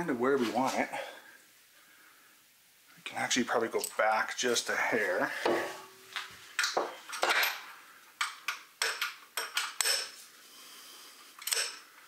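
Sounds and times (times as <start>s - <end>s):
wrench clicking on metal bolt: 11.4s - 11.8s.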